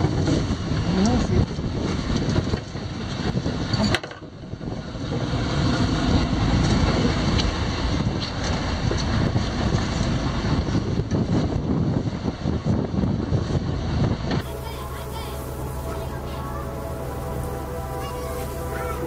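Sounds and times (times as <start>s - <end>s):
wind buffeting microphone: 0.0s - 19.0s
boat engine running: 14.4s - 19.0s.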